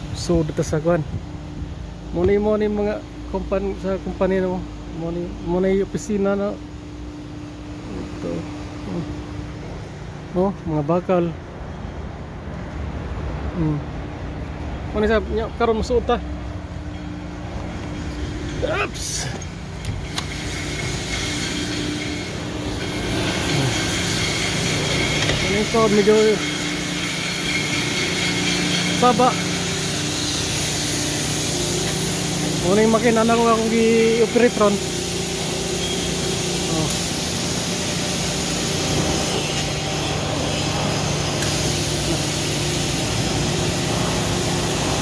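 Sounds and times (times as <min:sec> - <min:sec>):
factory machinery din: 0:13.1 - 0:45.0.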